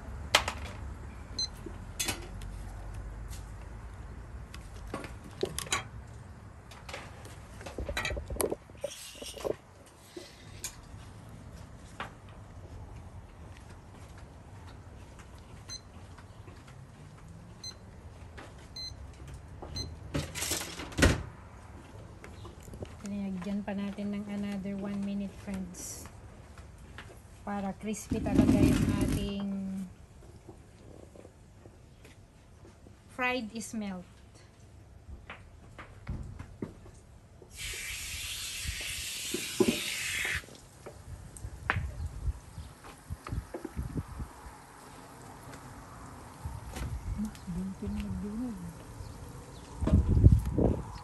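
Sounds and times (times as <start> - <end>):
steady hiss: 37.5 - 40.6.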